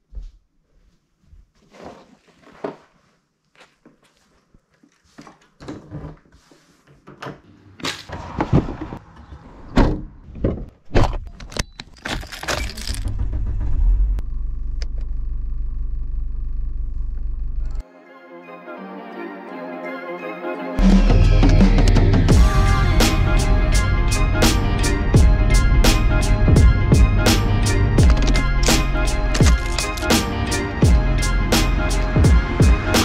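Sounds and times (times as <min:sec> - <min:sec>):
loud thumps and clunks: 0:09.7 - 0:14.2
car engine idling: 0:13.0 - 0:17.8
fishing gear rustling and clicking: 0:28.0 - 0:30.2.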